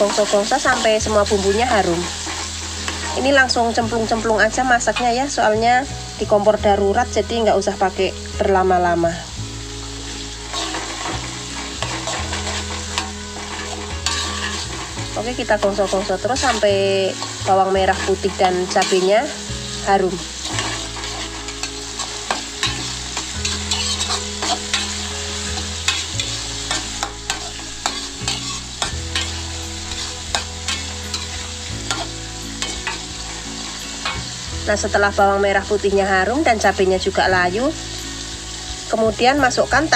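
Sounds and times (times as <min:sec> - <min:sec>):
metal spatula scraping pan: 0:00.0 - 0:03.6, 0:10.4 - 0:34.4
food sizzling in hot oil: 0:00.0 - 0:39.9.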